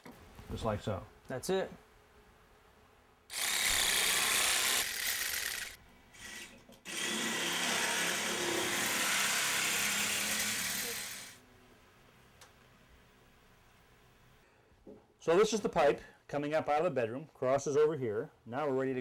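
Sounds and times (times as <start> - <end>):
power saw cutting plastic pipe: 3.3 - 11.4.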